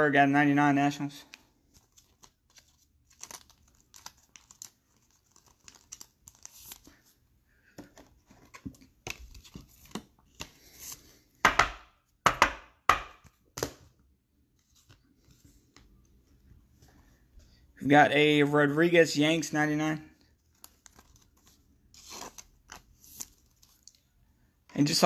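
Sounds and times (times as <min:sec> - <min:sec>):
plastic sleeves rustling: 0:00.9 - 0:11.2, 0:20.2 - 0:25.0.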